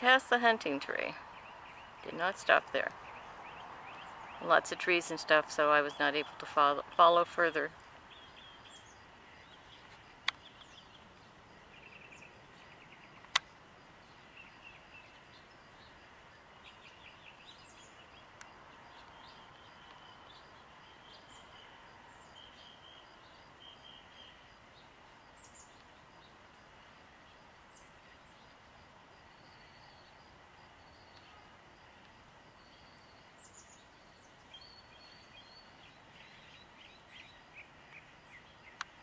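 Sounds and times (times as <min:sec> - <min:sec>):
steady background hiss: 0:00.0 - 0:39.0
small birds chirping and trilling: 0:00.6 - 0:26.4, 0:32.6 - 0:39.0
sharp clicks: 0:10.2 - 0:10.7, 0:13.2 - 0:13.5, 0:38.8 - 0:39.0.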